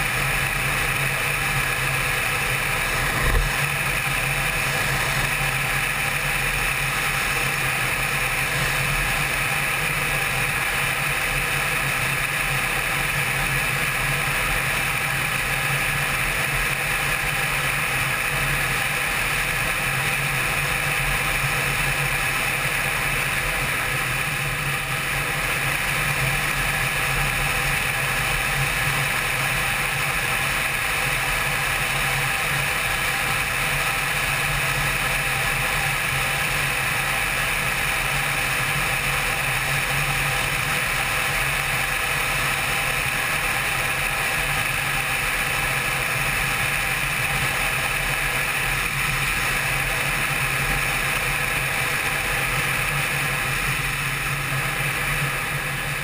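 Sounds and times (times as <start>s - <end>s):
motorcycle engine cruising: 0.0s - 9.5s.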